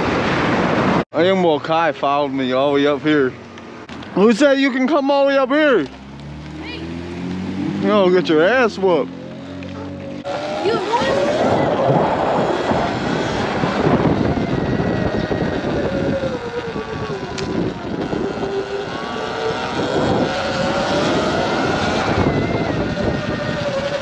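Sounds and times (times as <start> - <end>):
wind rushing across microphone: 0.0 - 1.1, 10.1 - 24.0
small motorbike engine whining: 5.0 - 24.0.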